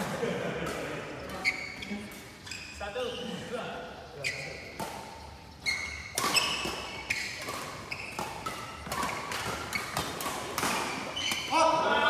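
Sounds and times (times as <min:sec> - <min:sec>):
shoes squeaking on court floor: 0:01.2 - 0:11.8
racket hitting shuttlecock: 0:04.6 - 0:11.6.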